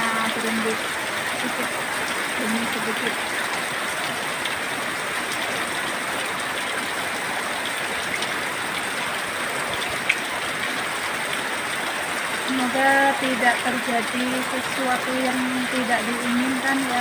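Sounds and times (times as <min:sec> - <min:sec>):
heavy rain pouring: 0:00.0 - 0:17.0
raindrop ticks: 0:09.6 - 0:17.0.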